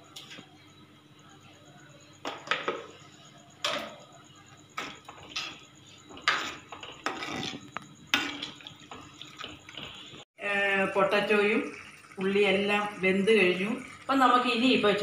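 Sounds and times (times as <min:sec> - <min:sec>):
spoon scraping metal pot: 0:06.2 - 0:08.7.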